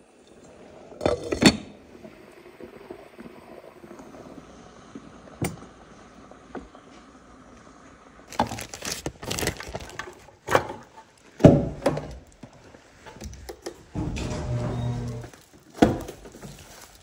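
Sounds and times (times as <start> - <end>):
garage door opener motor humming: 13.9 - 15.4.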